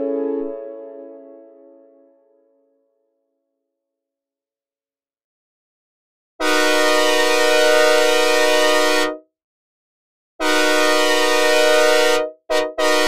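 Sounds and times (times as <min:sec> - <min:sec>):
synthesized train horn chord: 0:00.0 - 0:02.4, 0:06.4 - 0:09.2, 0:10.4 - 0:13.0.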